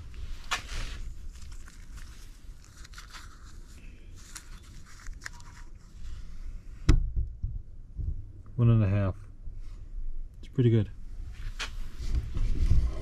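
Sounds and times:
gloved hand rustling paper: 0.0s - 6.4s
steady low rumble: 5.8s - 13.0s.

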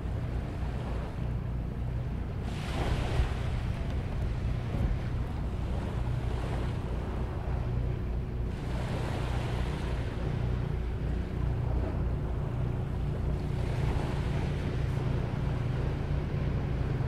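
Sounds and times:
ocean waves washing ashore: 0.0s - 17.0s
wind rumbling on microphone: 0.0s - 17.0s.

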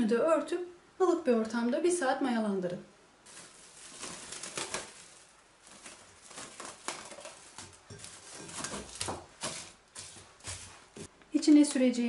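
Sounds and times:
cling film crinkling: 3.2s - 10.8s.

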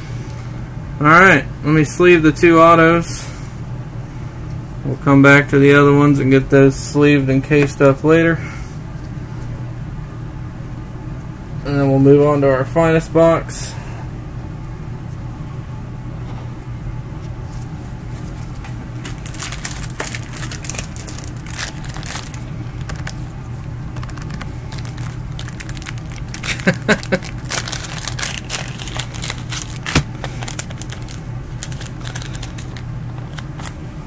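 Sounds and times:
steady low hum: 0.0s - 34.0s
plastic sleeves crinkling: 18.1s - 33.8s.

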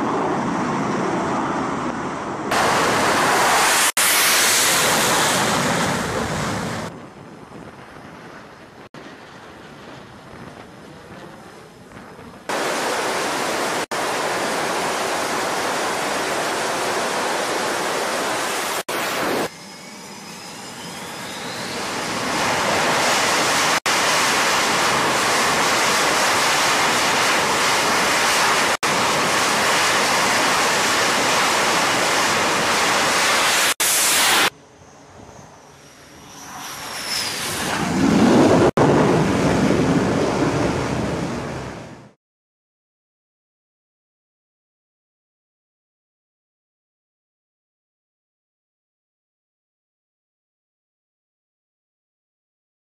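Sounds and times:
jet engine whine: 0.0s - 10.0s, 10.6s - 42.2s
jet landing on deck: 0.0s - 34.5s, 35.2s - 41.9s
jet engines roaring: 0.0s - 42.2s.

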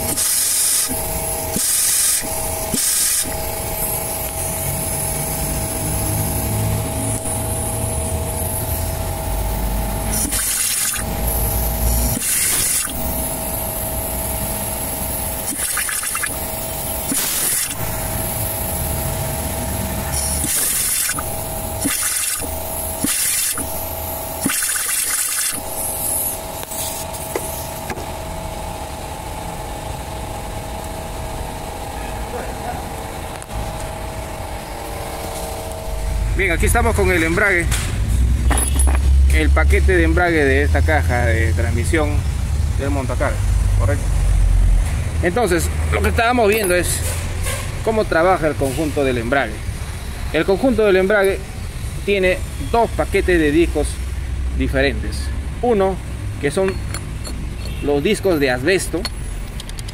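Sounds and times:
machine humming: 0.0s - 38.9s.

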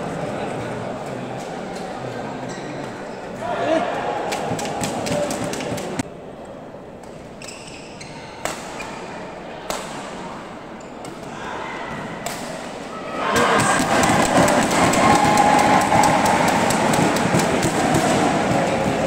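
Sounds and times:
murmur of spectator crowd: 12.1s - 19.0s.

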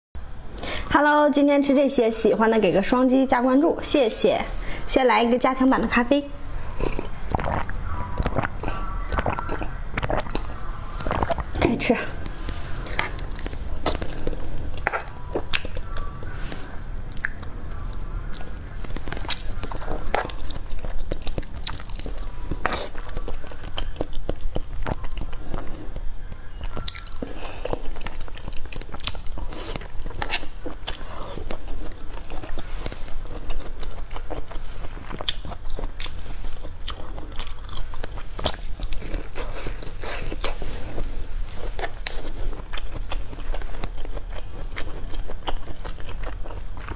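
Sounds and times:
crisp bites and chewing: 17.2s - 40.6s.

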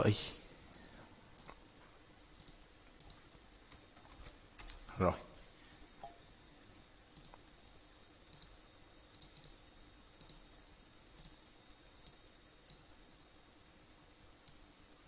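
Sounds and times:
faint room hum: 0.0s - 15.0s
computer mouse clicks: 0.7s - 1.6s, 2.4s - 4.9s, 7.1s - 7.4s, 8.3s - 9.6s, 10.2s - 10.4s, 11.2s - 11.4s, 12.0s - 12.9s, 14.4s - 14.6s.

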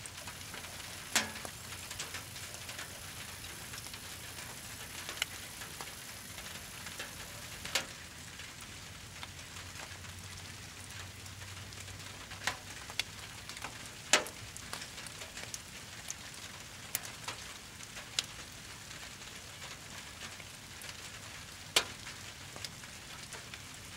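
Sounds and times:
fire popping: 0.0s - 18.3s
campfire crackling: 0.0s - 23.9s
fire hissing: 0.1s - 7.9s.

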